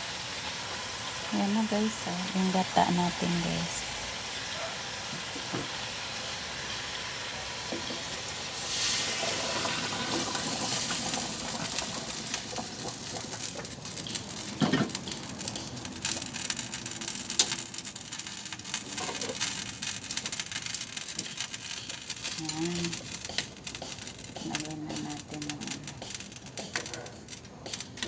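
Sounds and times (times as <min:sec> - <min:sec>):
oil sizzling: 0:00.0 - 0:28.0.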